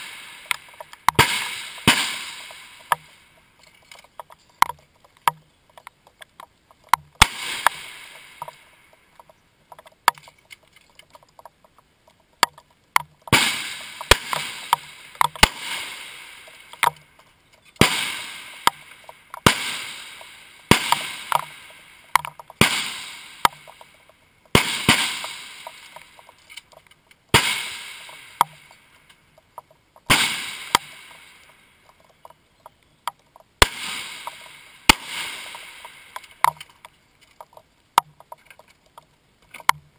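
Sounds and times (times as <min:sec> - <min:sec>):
rifle shots echoing: 0:00.0 - 0:03.3, 0:07.2 - 0:08.6, 0:13.3 - 0:17.0, 0:17.8 - 0:23.9, 0:24.5 - 0:26.3, 0:27.3 - 0:28.7, 0:30.1 - 0:31.6, 0:33.6 - 0:36.6.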